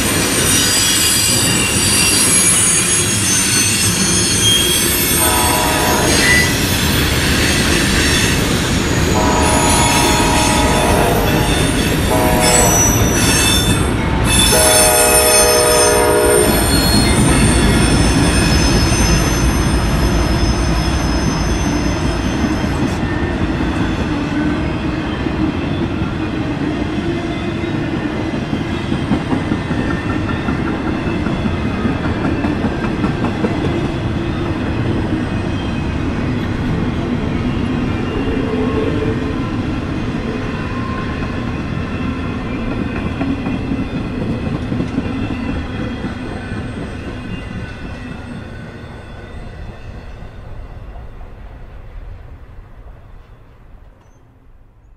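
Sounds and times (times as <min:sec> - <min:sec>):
freight train rumbling: 0:00.0 - 0:54.9
wheels squealing: 0:00.2 - 0:23.1
locomotive horn blasts: 0:05.2 - 0:06.5, 0:09.2 - 0:13.1, 0:14.5 - 0:16.7.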